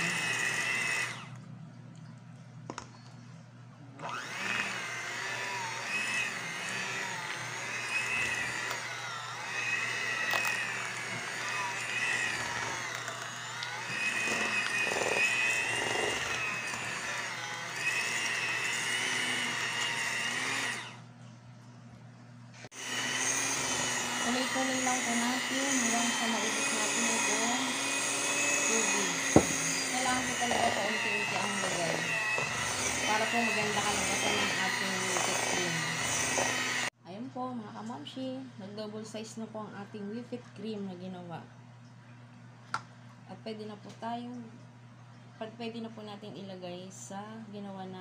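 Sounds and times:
electric hand mixer whining: 0.0s - 1.4s, 4.0s - 21.1s, 22.6s - 37.0s.

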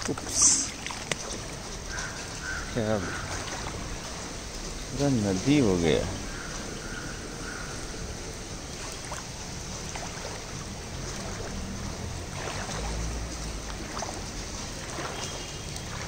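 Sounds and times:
watery hiss: 0.0s - 1.0s
water sloshing around wading feet: 0.0s - 16.0s.

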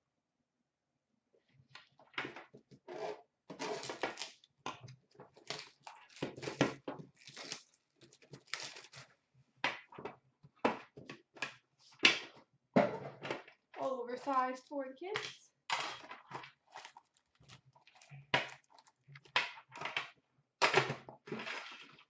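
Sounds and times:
plastic wrap crinkling and tearing: 5.3s - 9.2s, 15.8s - 19.9s.

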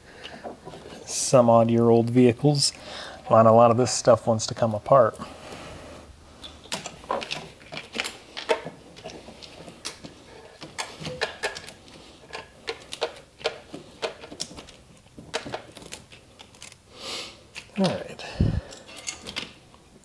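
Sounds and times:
plastic connectors clicking: 6.4s - 16.8s.

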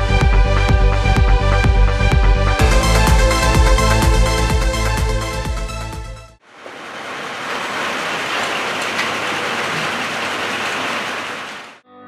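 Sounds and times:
electronic music: 1.8s - 6.4s.

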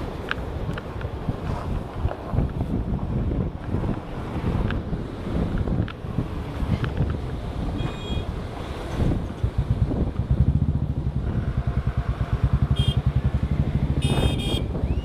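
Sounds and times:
wind rumble on microphone: 0.0s - 15.0s
motorcycle engine running: 9.1s - 14.8s.

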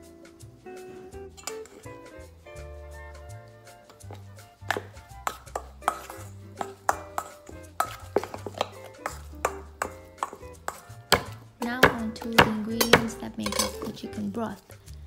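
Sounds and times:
background music: 0.0s - 15.0s
metal spoon clinking in bowl: 12.8s - 14.0s.

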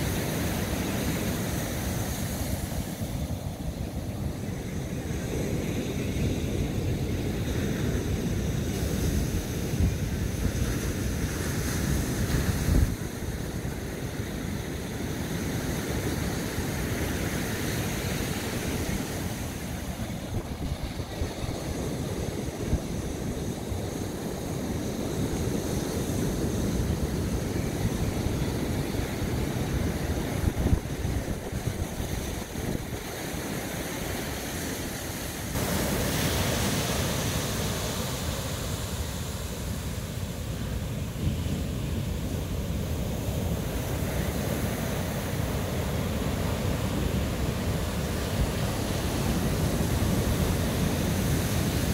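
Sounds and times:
ocean surf breaking: 0.0s - 51.9s
wind buffeting microphone: 0.1s - 38.1s.

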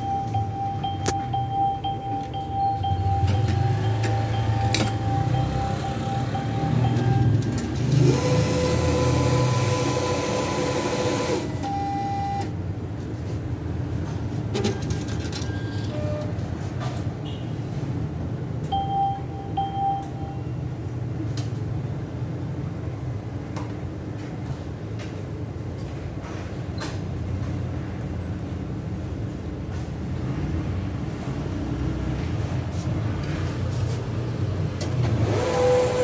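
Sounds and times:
short beeps: 0.0s - 7.6s, 11.6s - 12.5s, 15.4s - 16.4s, 18.7s - 20.6s.

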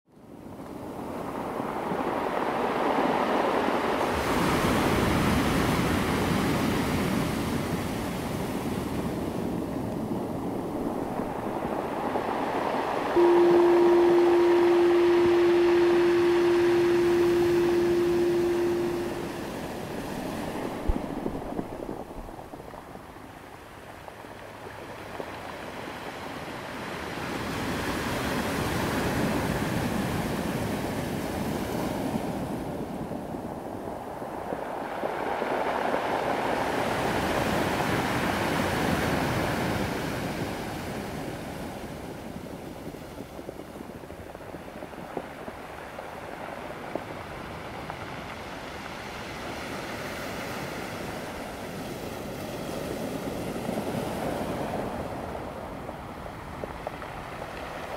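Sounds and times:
ocean waves breaking: 0.9s - 23.6s.

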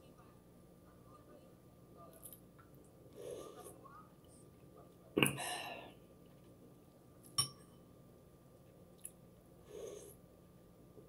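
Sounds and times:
spoon clinking on bowl: 7.4s - 7.6s.

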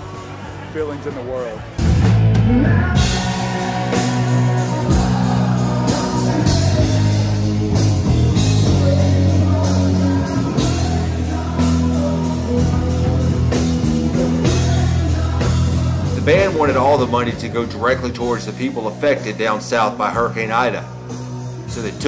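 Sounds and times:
electric guitar: 1.6s - 18.6s
drum kit: 1.7s - 22.0s
person singing: 2.4s - 20.7s.

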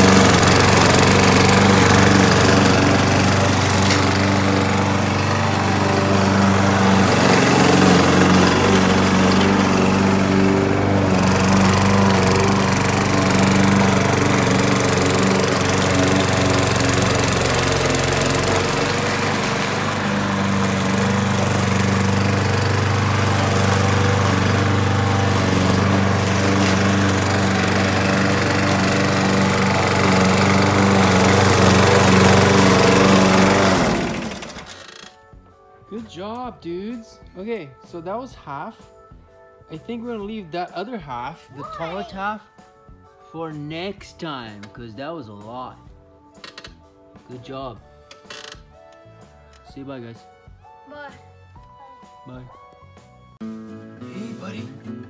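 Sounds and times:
lawn mower engine running: 0.0s - 35.2s.

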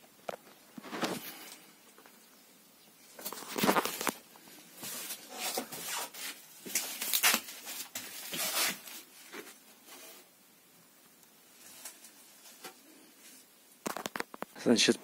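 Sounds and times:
handling rustles: 3.1s - 10.3s.

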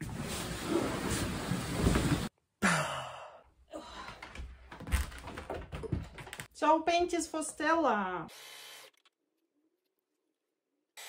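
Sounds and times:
woman sighing: 2.6s - 4.4s.

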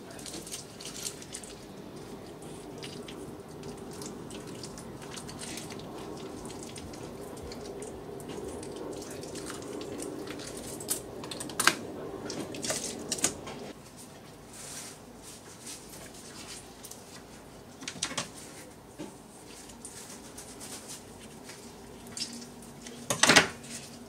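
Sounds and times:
steady low hum: 0.0s - 24.0s
wet squelching of octopus: 0.1s - 13.7s.

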